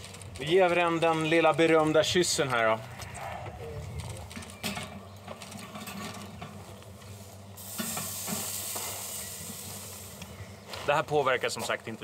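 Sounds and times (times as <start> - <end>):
meat sizzling on a grill: 7.6 - 10.2.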